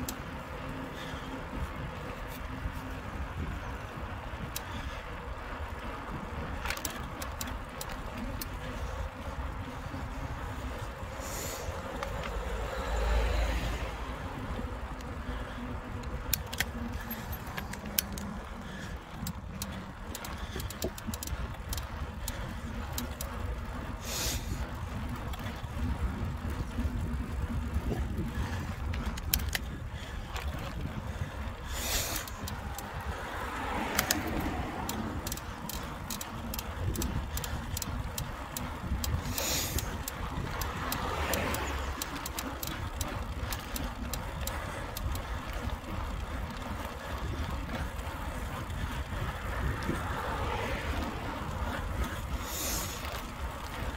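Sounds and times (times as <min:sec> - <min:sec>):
bike rattling over bumps: 0:00.0 - 0:53.9
bike tyres rumbling: 0:00.0 - 0:53.9.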